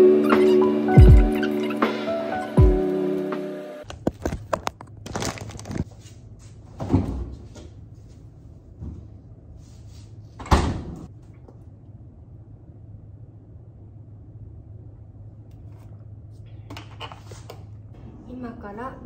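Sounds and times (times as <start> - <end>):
refrigerator door opening and shutting: 6.7 - 7.4, 10.4 - 11.1
low steady hum: 7.6 - 19.0.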